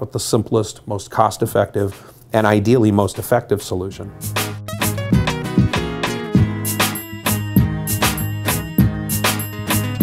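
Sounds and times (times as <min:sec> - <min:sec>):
background music with steady beat: 0:04.0 - 0:10.0.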